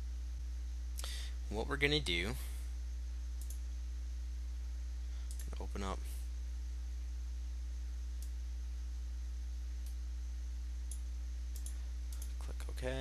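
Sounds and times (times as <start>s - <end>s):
low electrical hum: 0.0s - 13.0s
faint clicks: 3.4s - 3.6s, 5.2s - 5.6s, 10.8s - 12.4s.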